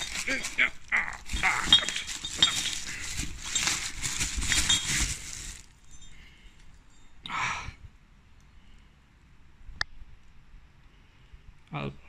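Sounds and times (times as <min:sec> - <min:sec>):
bubble wrap crinkling: 0:00.0 - 0:06.7.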